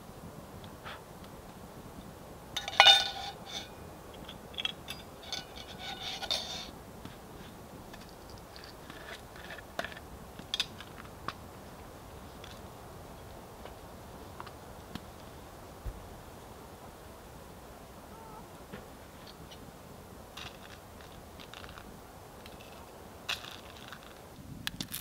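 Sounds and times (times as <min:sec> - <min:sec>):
metal cookware clanking: 0:02.6 - 0:03.7, 0:04.6 - 0:06.7.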